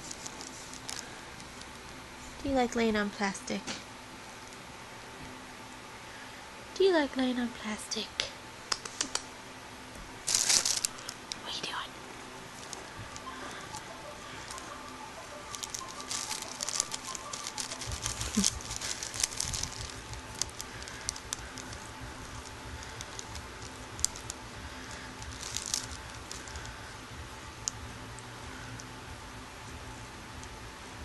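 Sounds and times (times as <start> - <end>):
plastic bag crinkling: 0.0 - 1.8, 10.2 - 11.4, 12.5 - 27.0
low steady rumble: 9.4 - 31.0.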